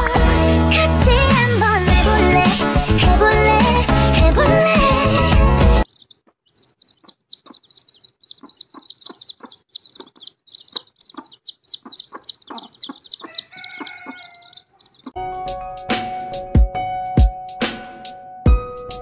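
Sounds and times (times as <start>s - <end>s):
chicks peeping: 4.8s - 15.2s
hen calling: 5.8s - 15.2s.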